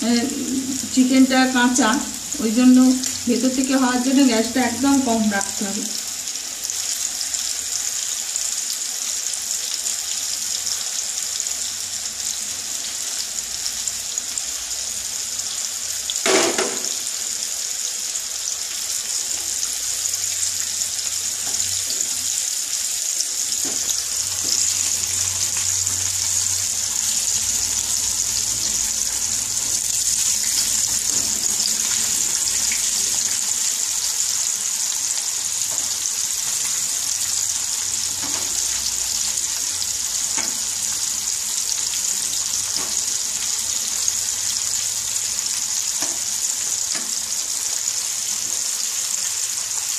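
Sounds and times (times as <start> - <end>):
chicken sizzling in hot oil: 0.0 - 49.9
sharp knock: 16.3 - 17.0.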